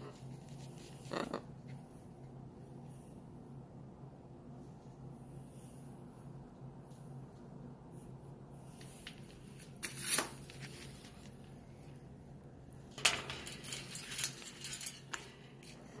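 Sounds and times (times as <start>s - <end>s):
parrot scraping metal cage: 13.0s - 15.1s.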